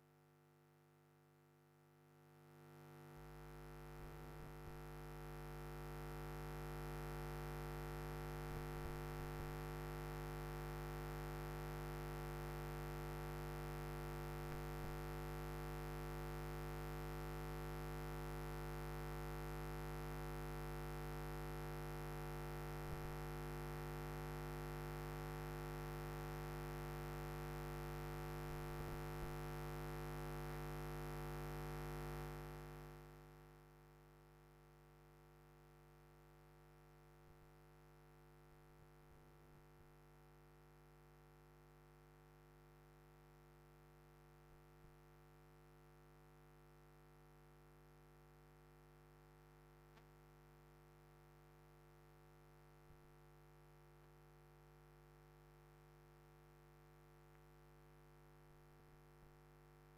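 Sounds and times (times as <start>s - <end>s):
electrical hum and buzz: 17.5s - 33.5s.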